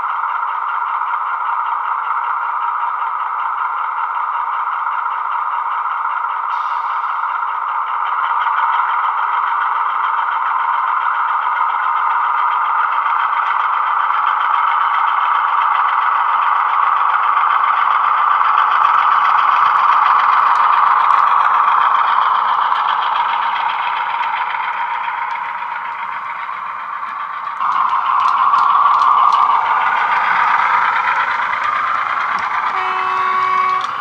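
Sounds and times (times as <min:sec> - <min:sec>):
model locomotive diesel engine sound: 0:00.0 - 0:34.0.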